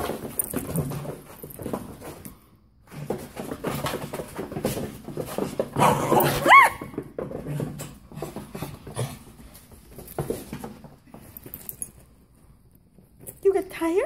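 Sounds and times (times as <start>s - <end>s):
dog scuffling with toy: 0.0s - 12.2s
dog high-pitched squeal: 5.8s - 7.0s.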